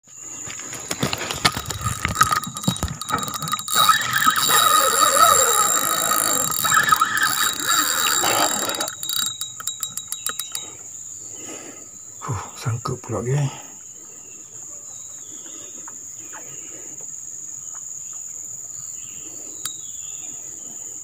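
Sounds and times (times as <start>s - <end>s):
high insect drone: 0.0s - 14.4s
reel clicking: 0.7s - 10.9s
fishing reel gear whirring: 0.7s - 11.0s.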